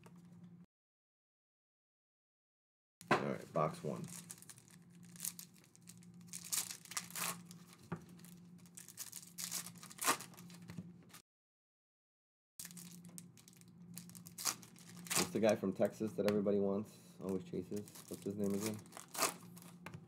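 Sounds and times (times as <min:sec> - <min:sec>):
low steady hum: 0:00.0 - 0:00.7, 0:03.0 - 0:11.2, 0:12.6 - 0:20.0
foil pack tearing and crinkling: 0:03.9 - 0:10.7, 0:12.6 - 0:15.6, 0:17.3 - 0:19.8.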